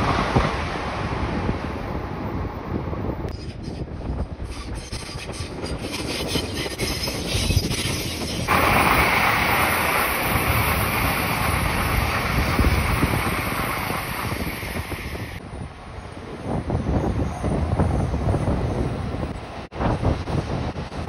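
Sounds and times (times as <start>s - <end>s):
wind rumble on microphone: 0.0s - 21.0s
train rushing past: 5.4s - 21.0s.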